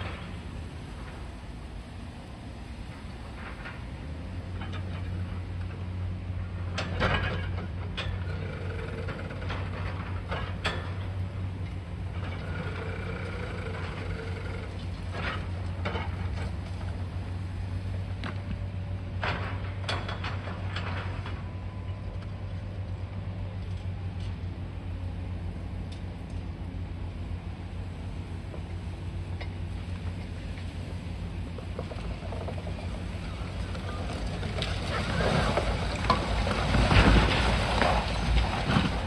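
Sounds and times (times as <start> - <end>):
excavator engine running: 0.0 - 39.0
demolition knocks and cracks: 31.7 - 39.0.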